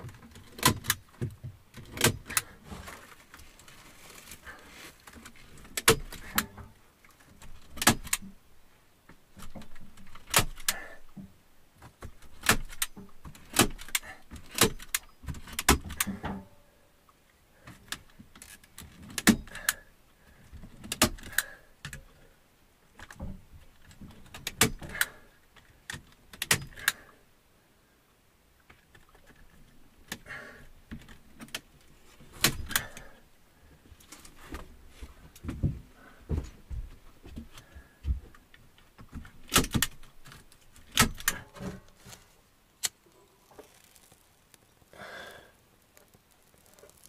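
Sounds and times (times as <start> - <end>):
rustling: 0.0 - 8.4, 31.1 - 36.0, 37.0 - 47.0.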